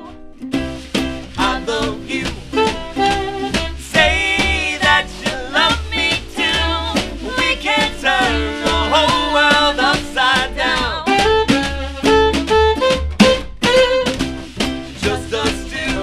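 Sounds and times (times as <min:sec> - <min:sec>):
swing band playing: 0:00.0 - 0:16.0
saxophone melody: 0:01.4 - 0:10.0, 0:11.0 - 0:14.3.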